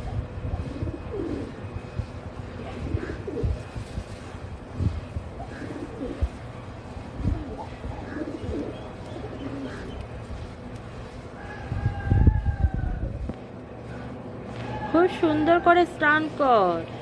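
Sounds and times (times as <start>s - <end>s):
pigeons cooing: 0.0s - 1.7s, 2.3s - 4.3s, 5.1s - 12.2s.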